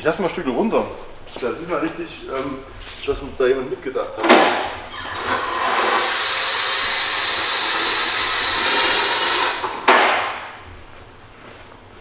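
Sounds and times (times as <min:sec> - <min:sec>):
car lift hissing: 0:04.9 - 0:09.9.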